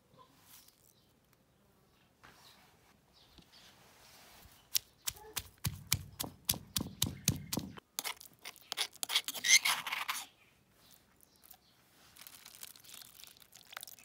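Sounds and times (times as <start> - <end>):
pestle grinding and scraping: 4.7 - 10.3
stone pestle pounding in mortar: 5.1 - 7.8.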